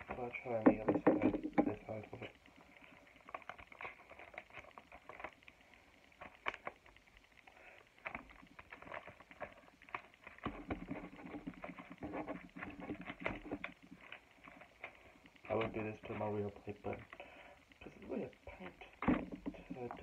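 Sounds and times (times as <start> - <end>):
cardboard and paper rustling: 0.0 - 5.6, 6.2 - 7.0, 7.8 - 17.3.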